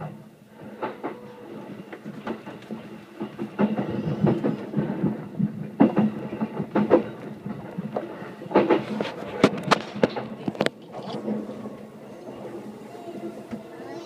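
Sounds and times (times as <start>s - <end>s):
train rumble: 0.0s - 14.0s
wheels clacking over rail joints: 0.0s - 14.0s.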